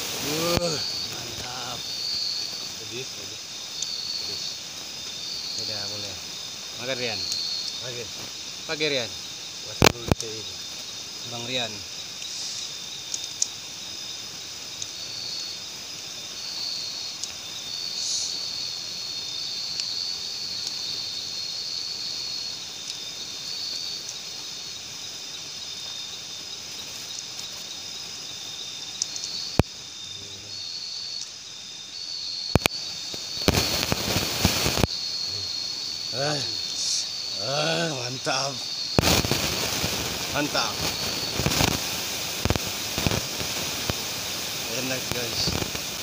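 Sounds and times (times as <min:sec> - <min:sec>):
sharp cracks and crackling: 0:00.0 - 0:03.2, 0:06.7 - 0:08.8, 0:09.7 - 0:13.7, 0:17.1 - 0:17.4, 0:28.9 - 0:29.8, 0:32.5 - 0:35.2, 0:38.3 - 0:46.0
constant hiss: 0:00.0 - 0:46.0
night insects chirring: 0:00.0 - 0:46.0.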